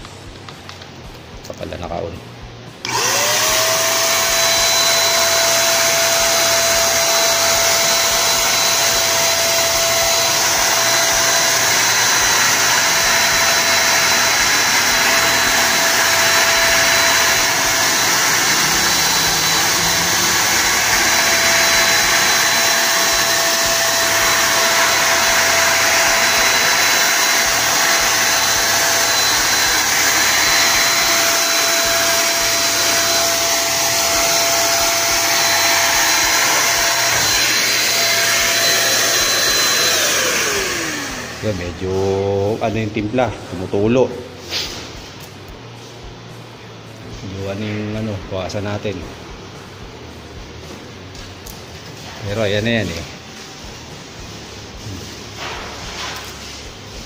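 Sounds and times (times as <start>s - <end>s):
spray gun motor whine: 2.8s - 43.0s.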